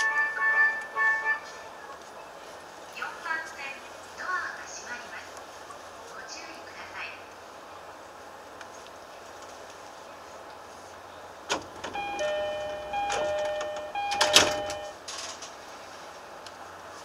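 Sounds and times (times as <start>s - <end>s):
train running: 0.0s - 17.0s
electronic chime tones: 12.0s - 15.0s.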